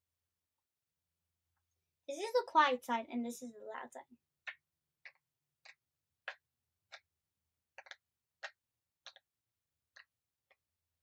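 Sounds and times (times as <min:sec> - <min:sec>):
pop-it toy bubbles popping: 0:04.4 - 0:07.1, 0:07.8 - 0:09.3.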